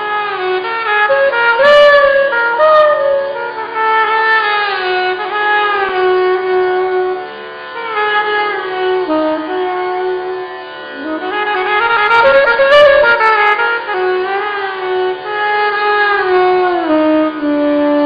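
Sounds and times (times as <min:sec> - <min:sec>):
saxophones playing slow melody: 0:01.6 - 0:03.6.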